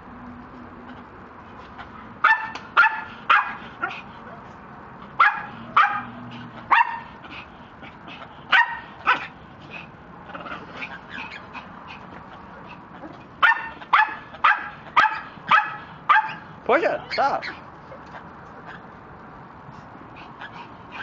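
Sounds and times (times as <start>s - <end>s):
small dog barking: 2.2s - 4.0s, 5.2s - 7.2s, 8.5s - 9.4s, 13.4s - 16.5s.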